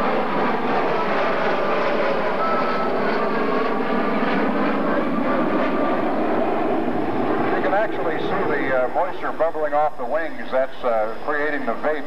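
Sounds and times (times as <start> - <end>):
jet aircraft flying overhead: 0.0 - 12.0
faint whining tones: 0.8 - 3.8.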